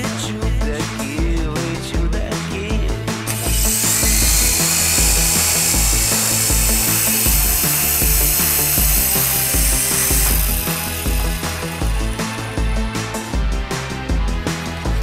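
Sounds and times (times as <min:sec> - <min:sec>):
background music with beat: 0:00.0 - 0:15.0
toy helicopter motor whine: 0:03.3 - 0:12.9.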